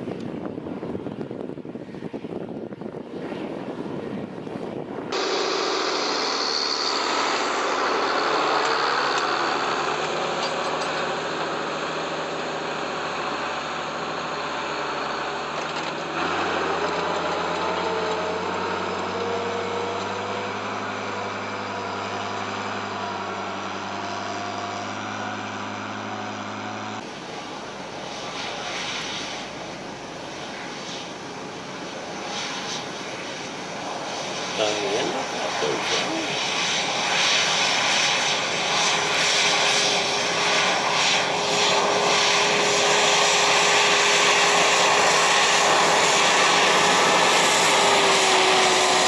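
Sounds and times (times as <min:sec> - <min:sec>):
tractor engine running: 0:05.1 - 0:30.4.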